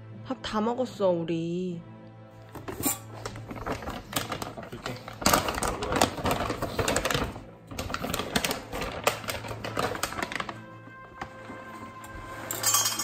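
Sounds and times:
background music: 0.0 - 13.0
plastic bag crinkling: 2.6 - 12.0
kibble rattling in bag: 2.7 - 10.7.

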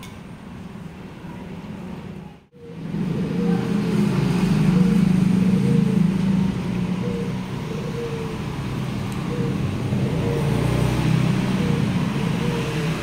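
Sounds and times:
road traffic: 0.0 - 13.0
vehicle engines droning: 0.0 - 13.0.

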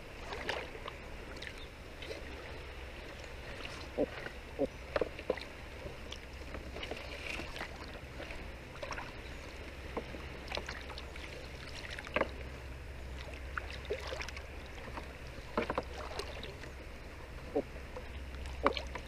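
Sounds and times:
steady low rumble: 0.0 - 19.0
water sloshing and splashing: 0.0 - 19.0.

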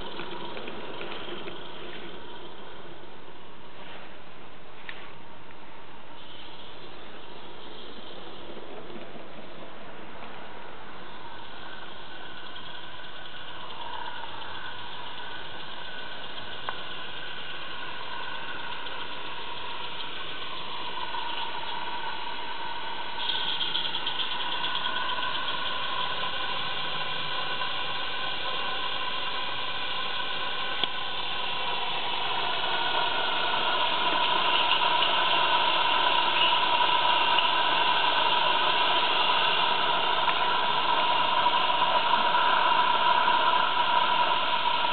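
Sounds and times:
steam locomotive hissing: 9.7 - 44.9.

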